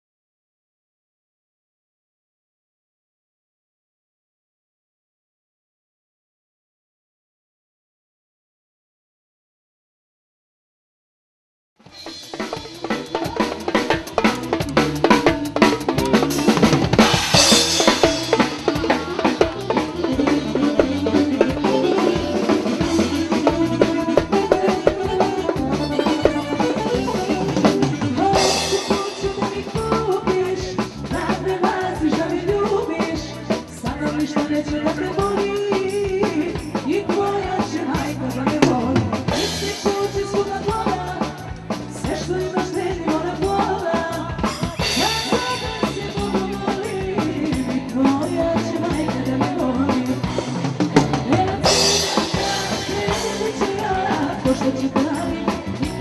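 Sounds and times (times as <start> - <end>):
drum kit beat: 11.8 - 56.0
keyboard melody: 12.0 - 30.1.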